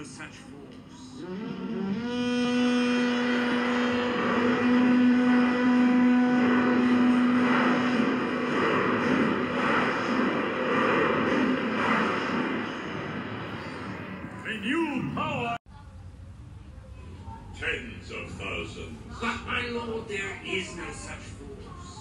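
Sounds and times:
deep horn blast through speakers: 1.2s - 14.1s
rush of noise: 2.1s - 14.5s.

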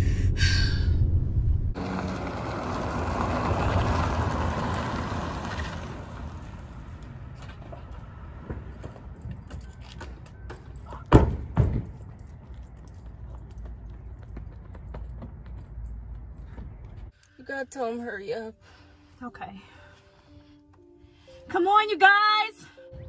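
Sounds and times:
car driving and slowing: 0.0s - 11.1s, 11.8s - 18.1s.

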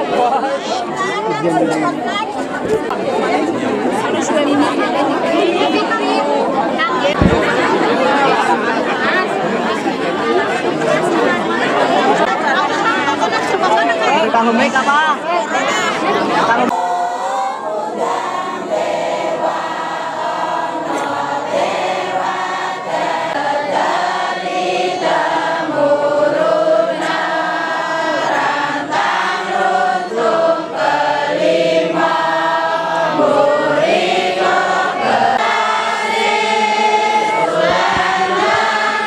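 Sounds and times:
group singing slow chant: 6.8s - 12.4s, 16.4s - 39.0s.

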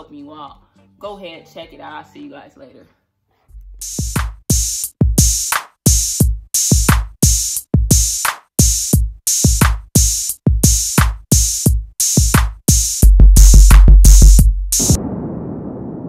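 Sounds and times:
drum machine beat: 3.8s - 15.0s
low rumble: 14.8s - 16.0s.

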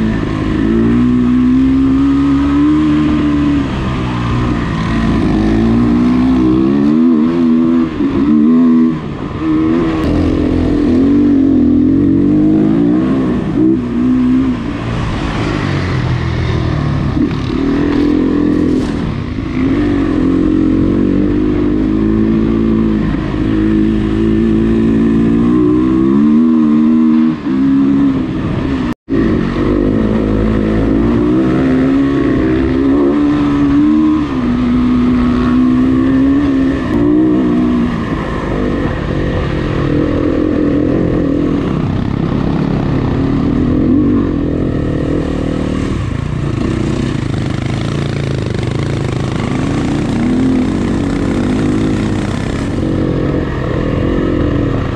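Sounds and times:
dirt bike engine revving: 0.0s - 54.9s.

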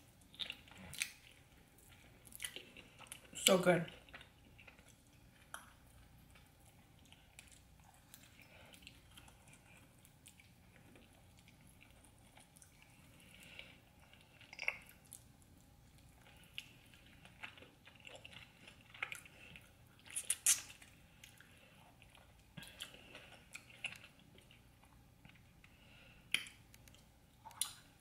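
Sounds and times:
chewing with wet mouth clicks: 0.1s - 27.9s
lip smacks: 20.1s - 21.4s, 26.3s - 27.9s.

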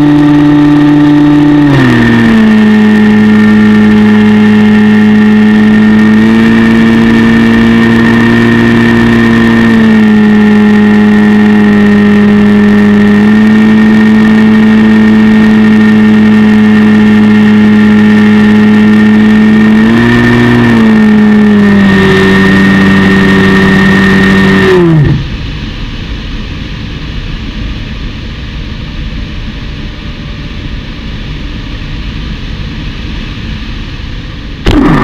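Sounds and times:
model plane motor drone: 0.0s - 25.4s, 34.6s - 35.0s.

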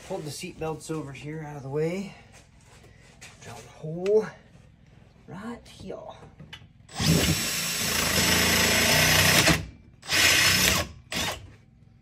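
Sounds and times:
power drill boring: 6.9s - 11.5s.

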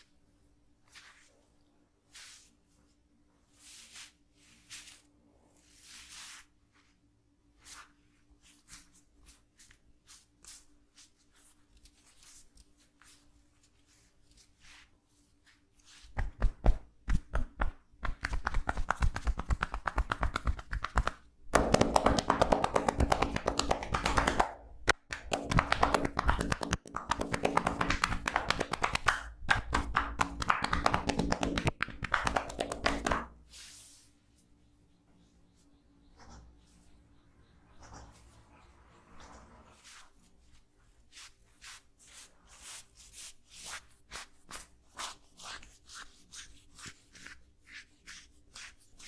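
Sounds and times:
hands tapping on a back: 16.2s - 33.4s.

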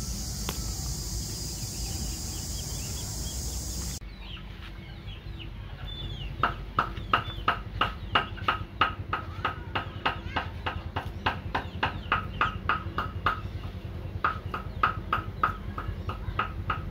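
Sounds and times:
steady high hiss: 0.0s - 4.0s.

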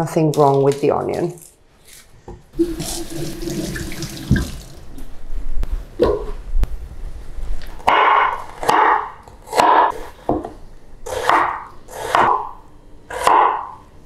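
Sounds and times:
knife chopping onion on board: 11.1s - 13.8s.

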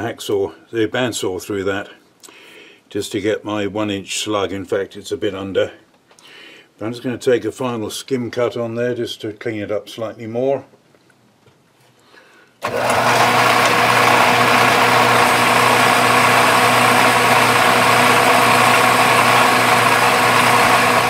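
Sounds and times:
metal lathe humming and whining: 12.6s - 21.0s.

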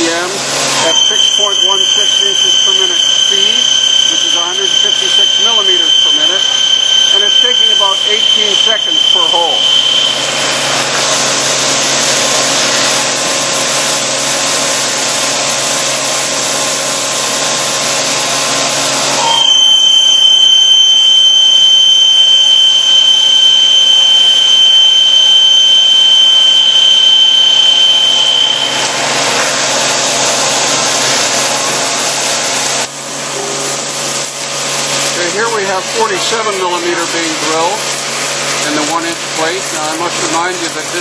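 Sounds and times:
coolant spraying hiss: 0.0s - 19.2s, 28.7s - 41.0s.

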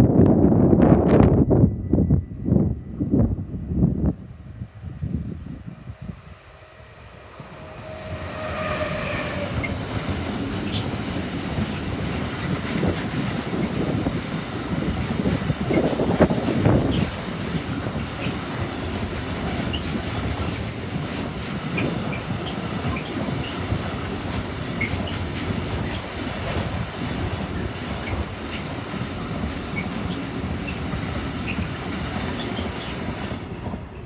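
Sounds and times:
freight train wheels rumbling: 0.0s - 34.0s
high wheel squeaks: 7.2s - 11.0s, 21.8s - 23.8s, 24.7s - 26.2s, 29.6s - 33.1s.

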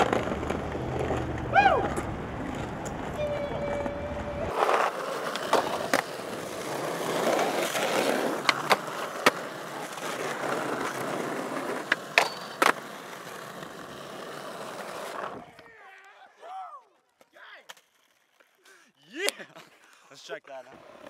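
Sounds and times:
skateboard clacking against ground: 0.0s - 14.0s
skateboard wheels rolling on asphalt: 0.0s - 16.2s, 17.0s - 18.6s, 20.5s - 21.0s.

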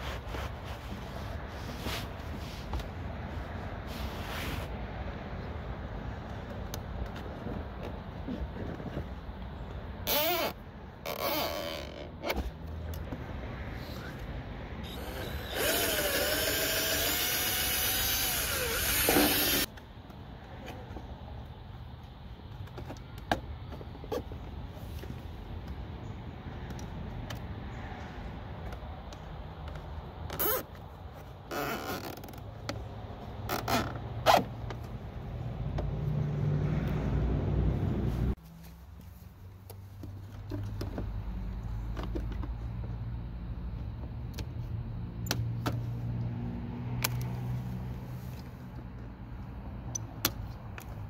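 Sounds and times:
cordless drill whining: 14.8s - 19.7s.

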